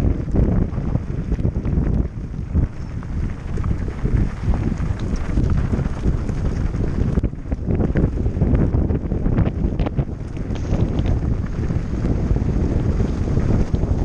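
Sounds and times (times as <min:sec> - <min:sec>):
bike rattling over stones: 0:00.0 - 0:14.0
wind buffeting microphone: 0:00.0 - 0:14.0
tyres clicking on gravel: 0:01.4 - 0:07.2.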